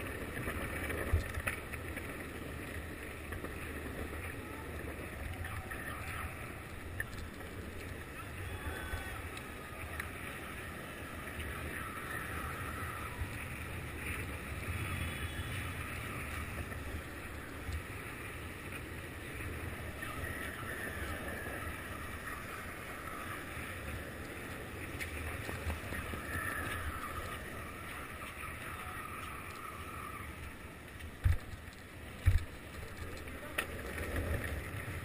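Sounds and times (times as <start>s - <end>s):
skateboard wheels clicking on cracks: 0.0s - 35.0s
skateboard wheels rolling on asphalt: 0.0s - 35.0s.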